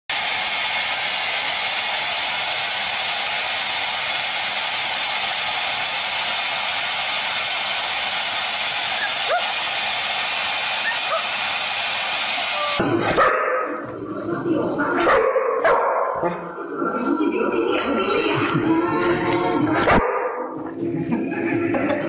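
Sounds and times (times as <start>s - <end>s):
hair dryer running: 0.1s - 12.8s.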